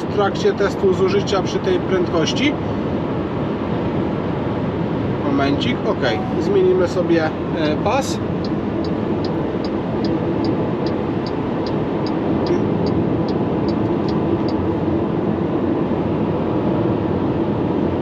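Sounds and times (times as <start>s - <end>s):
road and wind noise in cabin: 0.0s - 18.0s
turn signal ticking: 8.4s - 14.7s.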